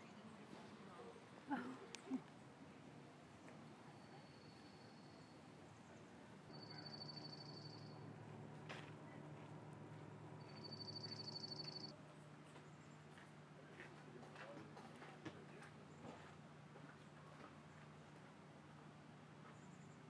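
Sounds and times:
low steady hum: 0.0 - 20.0
faint high rapid trill: 6.5 - 8.1, 10.4 - 11.9.

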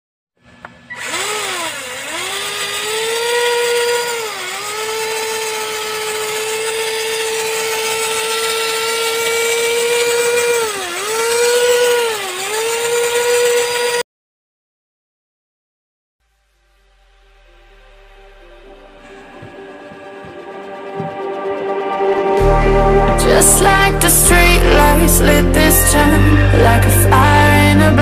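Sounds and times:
toy car electric motor whine: 0.5 - 14.0.

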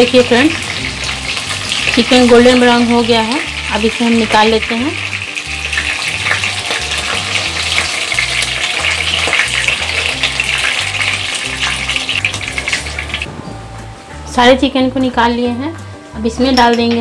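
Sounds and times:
chicken sizzling in hot oil: 0.0 - 13.3.

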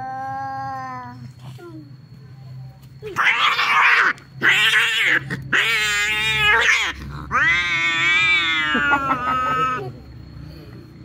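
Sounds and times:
cats screeching: 3.1 - 10.0
cats yowling: 3.1 - 10.0.

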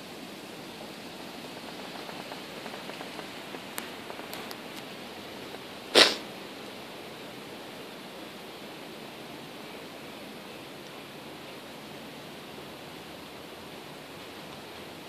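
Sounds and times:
rain hissing: 0.0 - 15.0
faint clicks: 1.5 - 6.8
short loud hissing burst: 5.8 - 6.4.

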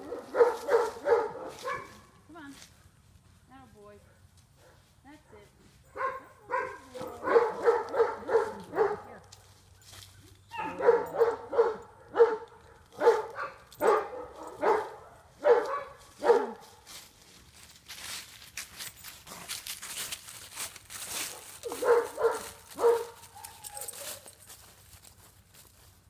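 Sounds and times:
dog barking: 0.0 - 2.2, 4.1 - 9.2, 10.5 - 16.7, 21.2 - 24.2.

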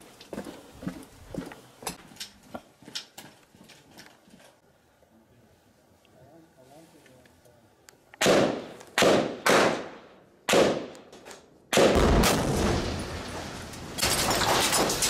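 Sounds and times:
rifle shots echoing: 8.2 - 11.1, 11.7 - 13.4.

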